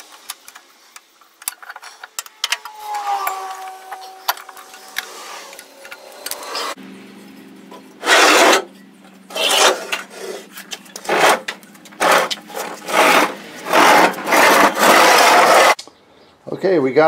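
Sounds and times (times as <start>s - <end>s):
mower deck scraping on concrete: 8.0s - 8.7s, 9.3s - 15.8s.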